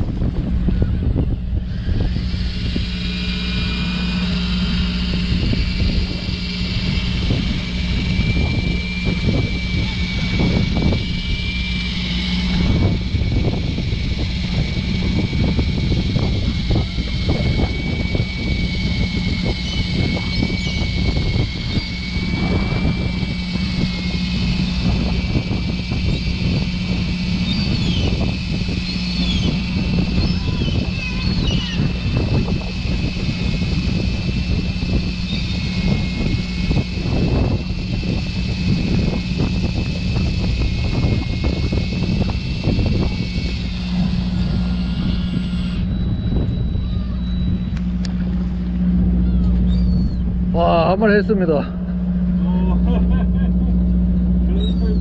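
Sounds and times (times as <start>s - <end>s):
boat engine humming: 0.0s - 55.0s
thin high whine: 0.0s - 55.0s
seagulls crying: 19.0s - 22.3s, 27.2s - 33.4s, 44.2s - 50.5s, 51.8s - 55.0s.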